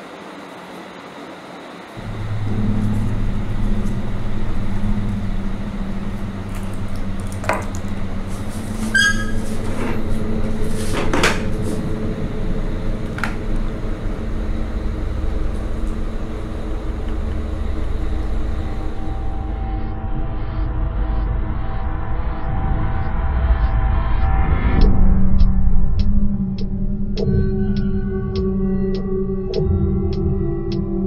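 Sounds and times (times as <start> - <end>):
low droning hum: 0.0 - 31.0
metallic ringing sweep: 2.0 - 7.2.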